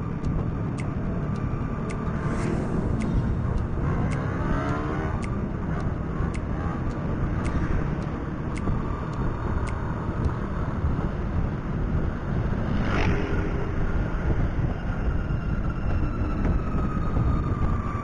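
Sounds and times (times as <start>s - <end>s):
wind rumble: 0.0s - 18.0s
light ticking: 0.2s - 10.4s
motorcycle engine: 1.6s - 8.3s.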